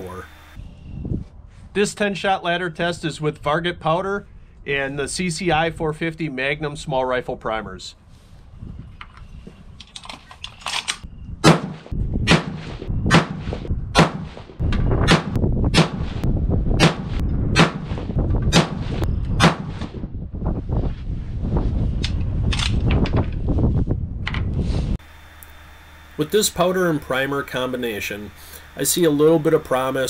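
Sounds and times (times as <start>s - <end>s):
rifle shots with ringing tail: 11.4s - 14.4s.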